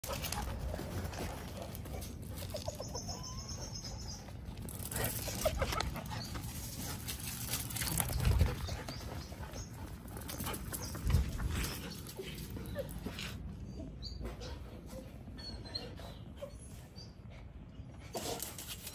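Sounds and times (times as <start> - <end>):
dog paws scuffling on grass and brick: 0.0 - 13.6.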